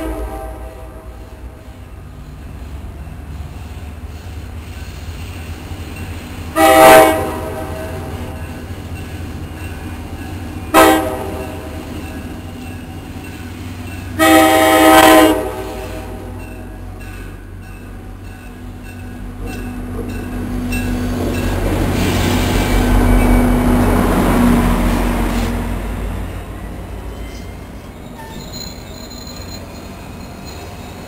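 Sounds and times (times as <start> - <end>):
locomotive air horn blasts: 0.0 - 1.2, 6.5 - 8.2, 10.7 - 11.8, 14.2 - 16.4
train rumble: 0.0 - 31.0.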